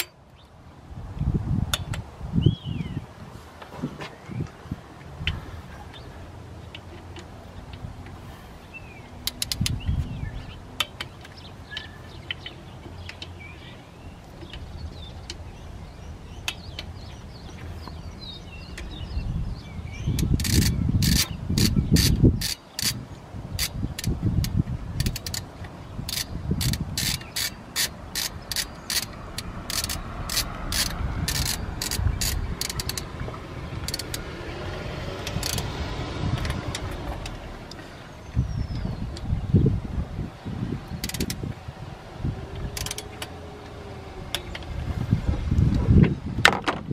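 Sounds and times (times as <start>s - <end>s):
hand ratchet clicking: 9.2s - 9.8s, 20.2s - 23.0s, 23.6s - 33.1s, 33.8s - 34.2s, 35.2s - 35.7s, 41.0s - 41.4s, 42.7s - 43.4s.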